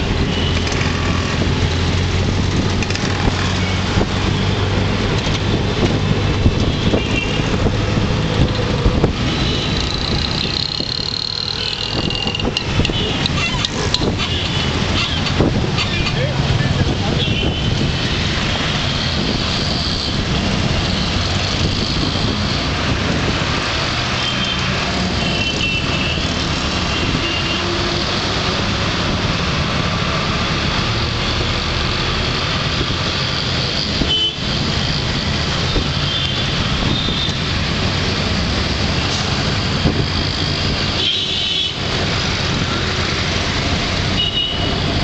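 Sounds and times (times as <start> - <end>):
rickshaw engine running: 0.0 - 17.0
traffic din: 0.0 - 45.0
short high vehicle horns: 44.2 - 44.7.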